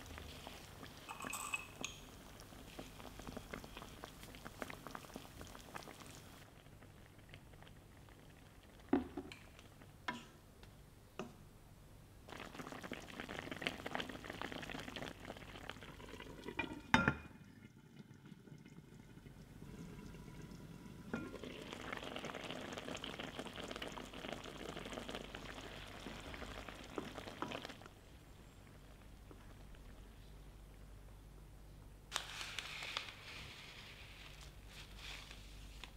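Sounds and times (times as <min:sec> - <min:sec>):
sauce bubbling and sizzling in wok: 0:00.0 - 0:10.4, 0:12.3 - 0:29.8.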